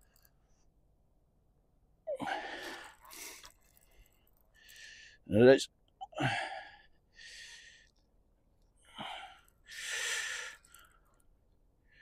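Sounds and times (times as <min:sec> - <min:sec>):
man breathing hard: 0:02.2 - 0:05.2, 0:06.2 - 0:08.0, 0:08.9 - 0:11.1.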